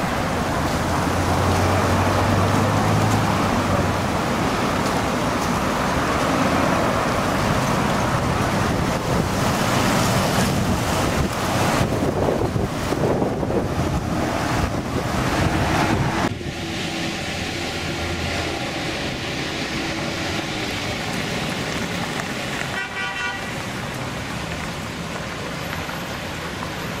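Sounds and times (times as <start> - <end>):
road traffic passing: 0.0 - 27.0
strong wind blasting microphone: 7.4 - 21.0
car horn: 22.7 - 23.6.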